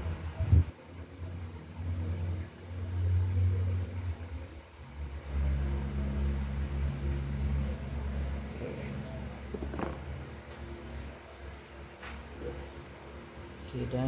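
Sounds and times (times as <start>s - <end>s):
vehicle engine rumbling: 0.0s - 13.9s.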